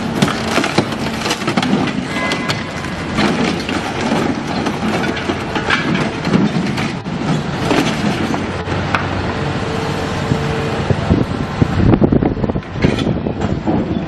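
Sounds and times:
metal clanks and crunches: 0.0s - 9.0s
heavy machinery running: 0.0s - 14.0s.

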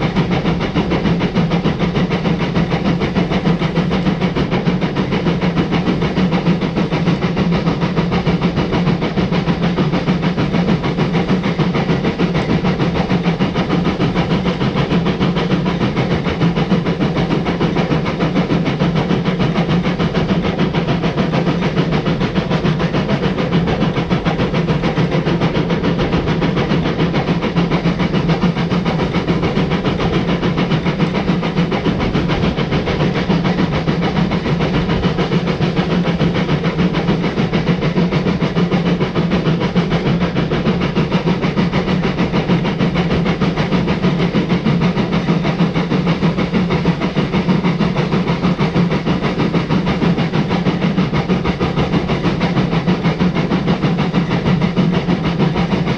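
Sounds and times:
steam locomotive hiss and rumble: 0.0s - 55.9s.

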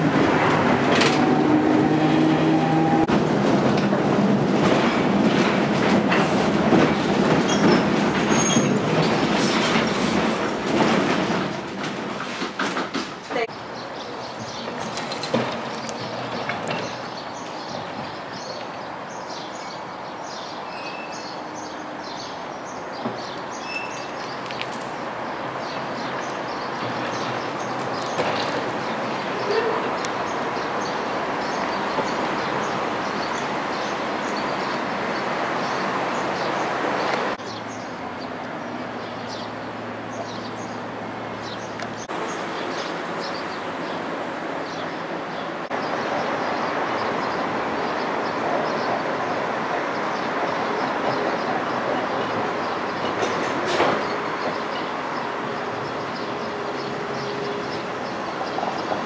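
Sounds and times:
tram rolling over tracks: 0.0s - 59.0s
small birds chirping: 13.5s - 15.2s.

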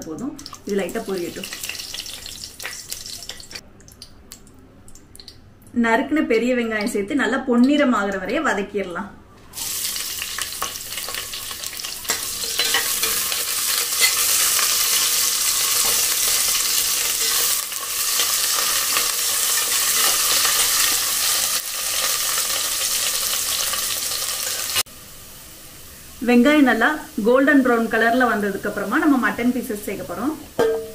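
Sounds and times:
onions sizzling in hot oil: 0.4s - 3.6s, 9.5s - 30.9s
spatula stirring: 10.3s - 21.0s.

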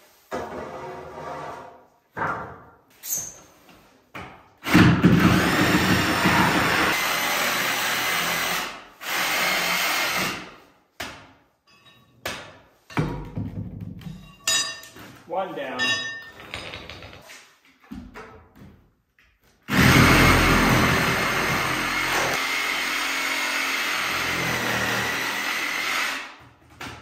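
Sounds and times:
power tool running: 4.7s - 10.4s, 19.7s - 26.3s.

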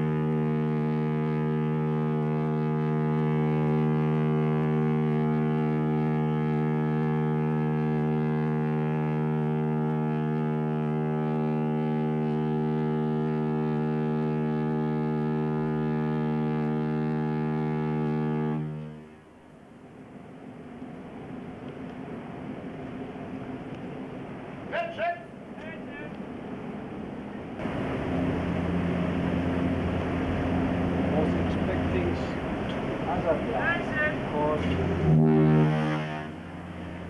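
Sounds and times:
ship's horn deep blast: 0.0s - 19.4s, 27.6s - 37.0s
low rumble: 27.6s - 37.0s.

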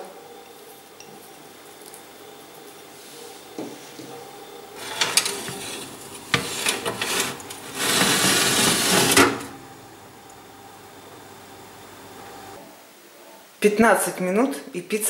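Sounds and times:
metal baking tray clattering: 4.8s - 9.5s
tray scraping on oven runners: 4.8s - 9.6s.

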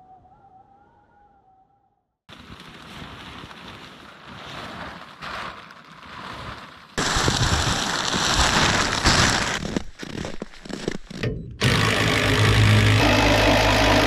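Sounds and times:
plastic sheeting crackling: 2.3s - 11.2s.

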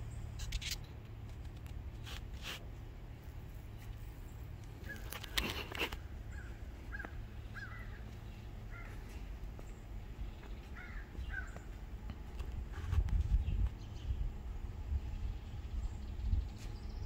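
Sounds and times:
steady low rumble: 0.0s - 17.0s
bird calling: 4.2s - 11.8s.

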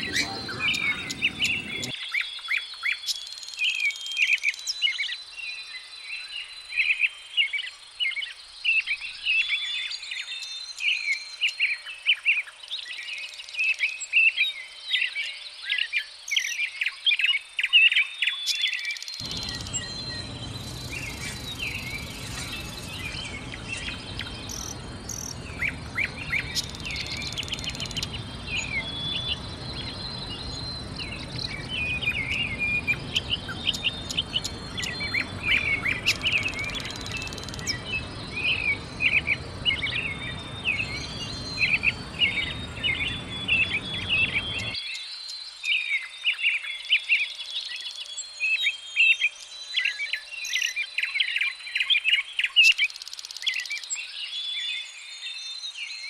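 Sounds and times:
low background rumble: 0.0s - 1.9s, 19.2s - 44.8s
songbirds chirping and trilling: 0.0s - 2.0s, 18.7s - 56.0s.

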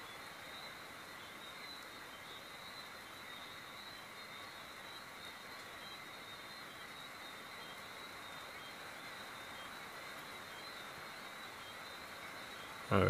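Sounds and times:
faint high steady tone: 0.0s - 13.0s
rain falling: 0.0s - 13.0s.

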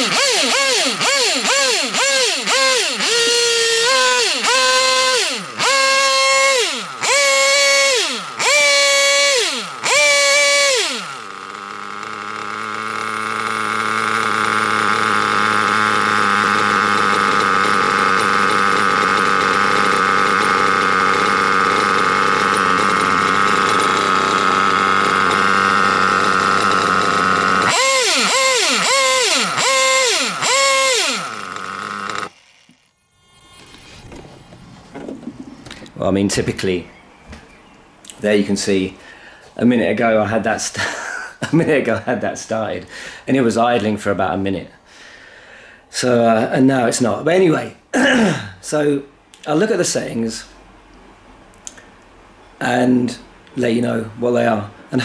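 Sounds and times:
nitro engine revving and idling: 0.0s - 32.8s.

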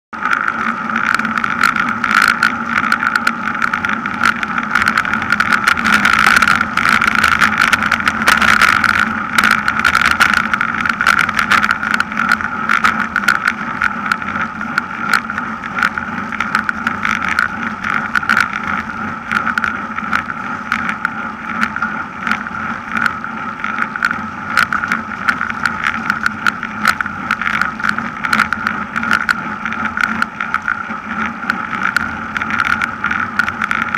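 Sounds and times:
bicycle road hum: 0.1s - 33.9s
small rattling clicks: 0.2s - 33.9s.

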